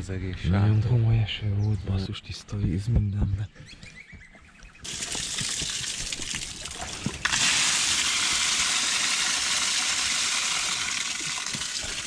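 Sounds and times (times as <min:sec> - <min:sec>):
rain drops ticking: 0:04.9 - 0:12.0.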